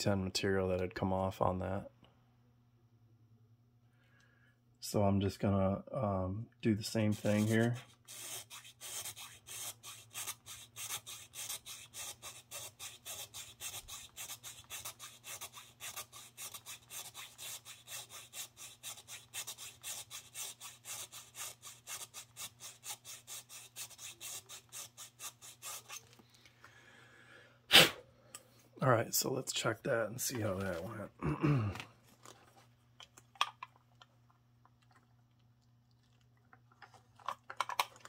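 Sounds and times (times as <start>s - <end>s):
needle file rasping: 7.1s - 26.2s.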